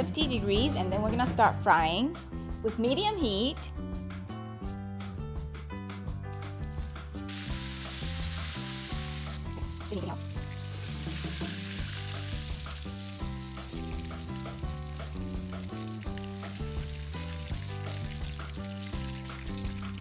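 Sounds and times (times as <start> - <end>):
background music: 0.0 - 20.0
fish sizzling in hot oil: 6.6 - 20.0.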